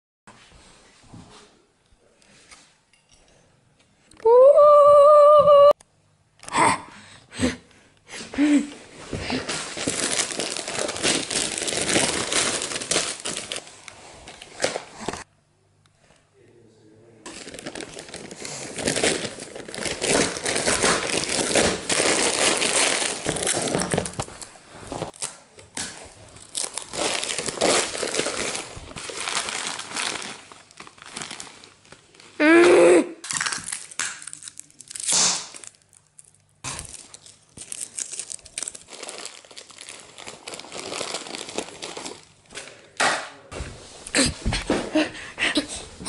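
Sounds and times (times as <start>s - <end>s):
wrapping paper crinkling: 9.3s - 15.2s, 17.3s - 32.4s, 33.3s - 42.8s.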